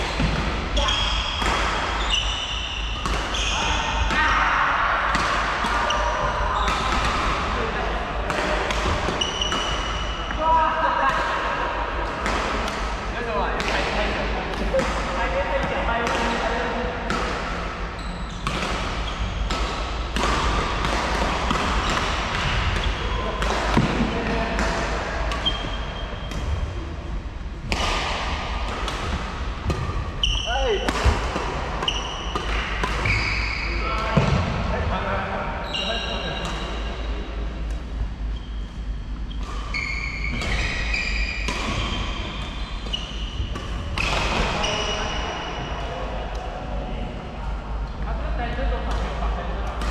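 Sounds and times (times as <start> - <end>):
rackets hitting shuttlecock: 5.1 - 7.6, 18.4 - 26.8, 27.6 - 34.6, 39.3 - 45.7
shoes squeaking on wooden floor: 39.3 - 41.9.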